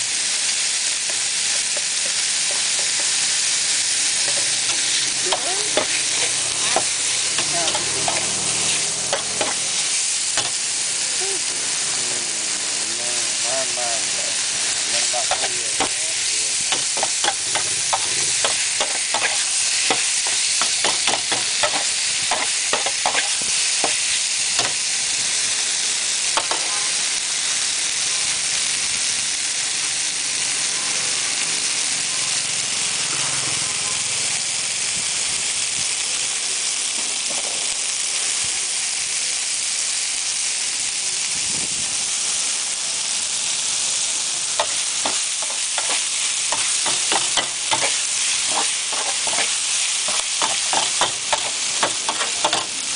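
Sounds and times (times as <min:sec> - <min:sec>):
noodles sizzling in a pan: 0:00.0 - 0:52.9
metal spatula scraping a pan: 0:04.1 - 0:10.6, 0:16.7 - 0:24.8, 0:44.6 - 0:52.9.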